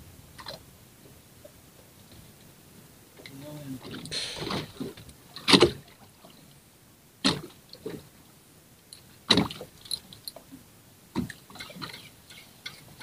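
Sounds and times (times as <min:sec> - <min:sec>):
water splashing against boat hull: 0:03.2 - 0:06.3.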